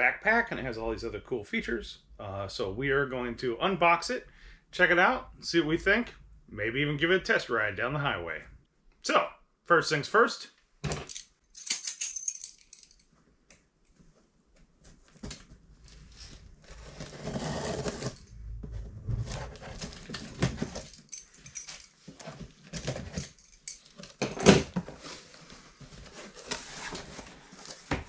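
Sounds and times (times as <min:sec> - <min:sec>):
rustling: 0:11.1 - 0:28.0
cardboard flaps scraping: 0:14.8 - 0:20.8
knife cutting packing tape: 0:16.7 - 0:18.2.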